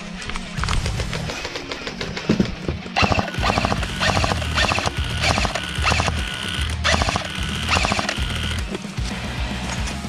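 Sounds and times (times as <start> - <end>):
airsoft gun full-auto bursts: 3.0 - 8.6.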